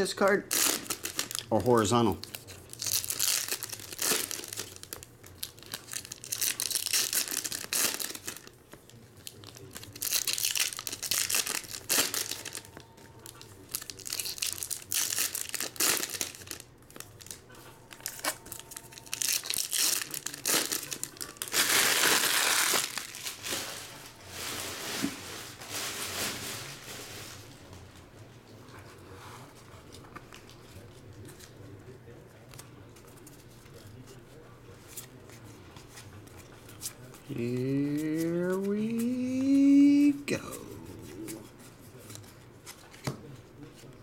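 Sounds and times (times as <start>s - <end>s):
foil wrappers crinkling and tearing: 0.1s - 27.7s, 32.5s - 40.1s.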